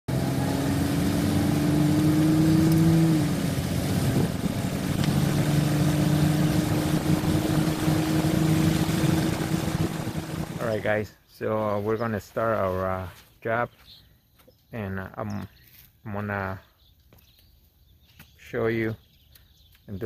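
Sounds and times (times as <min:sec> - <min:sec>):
vehicle engine droning: 0:00.1 - 0:10.8.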